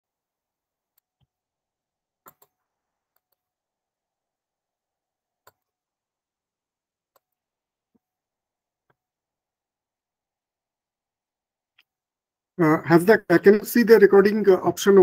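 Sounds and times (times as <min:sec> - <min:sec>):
computer mouse clicks: 0:02.2 - 0:03.5, 0:05.4 - 0:05.8, 0:07.1 - 0:07.4.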